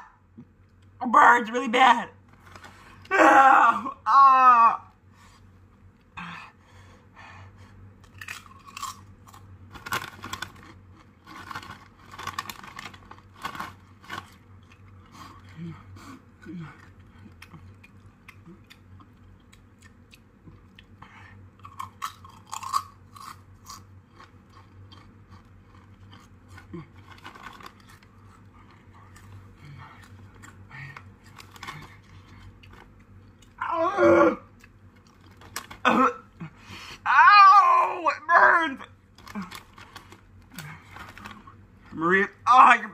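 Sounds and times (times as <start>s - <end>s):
chips being crunched: 8.0s - 14.9s, 21.6s - 24.3s
chewing crunchy chips: 8.0s - 36.8s, 38.9s - 42.0s.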